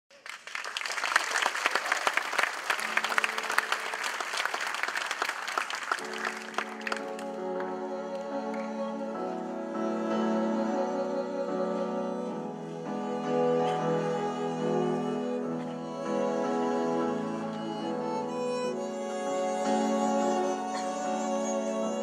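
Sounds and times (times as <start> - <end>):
audience applauding: 0.1 - 8.8
slow bowed string music: 6.1 - 22.0.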